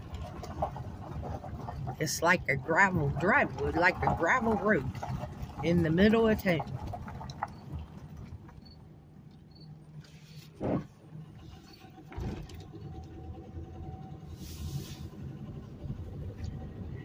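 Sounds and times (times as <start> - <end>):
car road noise on gravel: 0.0 - 17.0
loud thump: 10.6 - 10.9.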